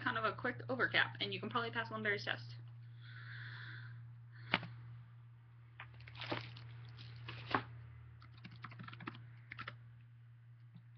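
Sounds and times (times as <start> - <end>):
steady low hum: 0.0 - 10.9
computer keyboard clicks: 8.4 - 9.8.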